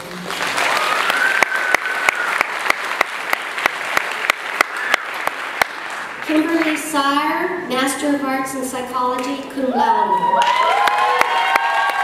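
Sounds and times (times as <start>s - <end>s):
audience applauding: 0.0s - 6.8s, 10.4s - 12.0s
nearby sharp clapping: 0.2s - 6.8s
crowd cheer or whistle: 0.7s - 2.6s, 4.6s - 5.3s, 10.1s - 12.0s.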